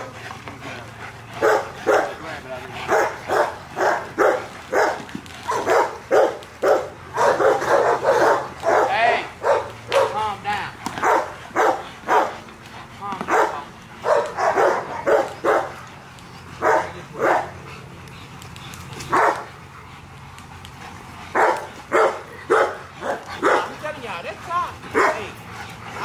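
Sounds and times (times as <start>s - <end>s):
dogs barking: 0.0s - 26.0s.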